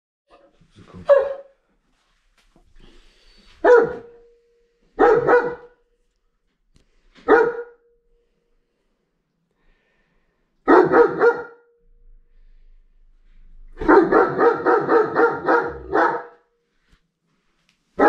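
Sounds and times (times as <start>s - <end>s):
dog barking: 0.9s - 1.6s, 3.6s - 4.3s, 5.0s - 5.8s, 7.2s - 8.0s, 10.6s - 11.8s, 13.8s - 16.5s.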